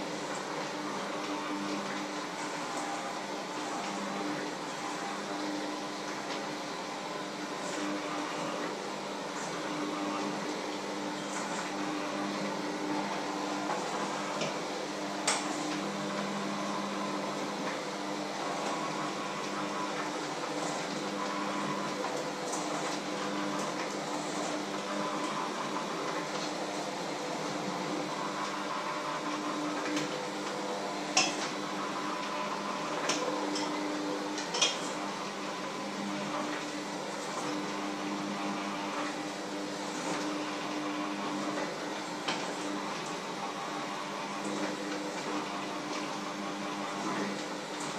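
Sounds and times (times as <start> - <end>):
electric hand mixer running: 0.0 - 47.9
mixer clinking against bowl: 34.4 - 35.0.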